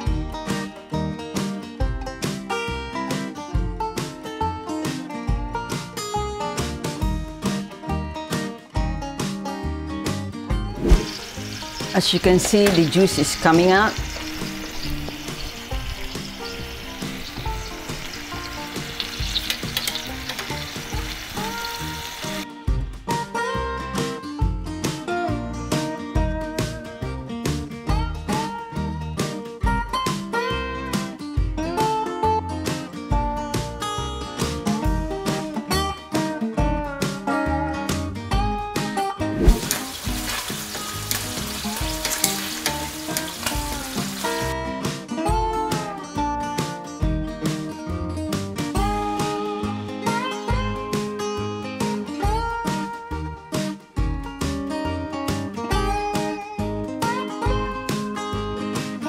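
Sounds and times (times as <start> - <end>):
acoustic guitar music: 0.0 - 59.0
meat sizzling in a pan: 10.8 - 22.4, 39.4 - 44.6
metal tongs scraping meat: 39.5 - 44.4.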